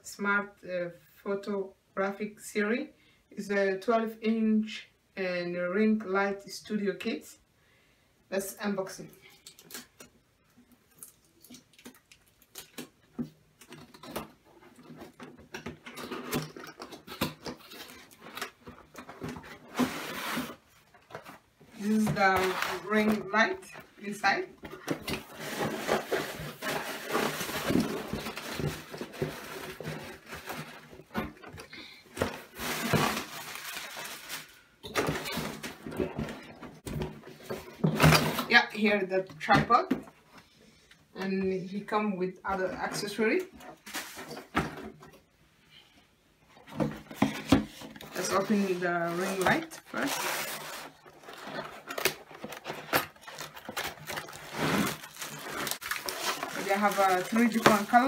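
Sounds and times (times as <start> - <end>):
cardboard sliding rustle: 19.2 - 20.6, 25.2 - 30.8
cardboard rubbing and scraping: 47.2 - 58.0.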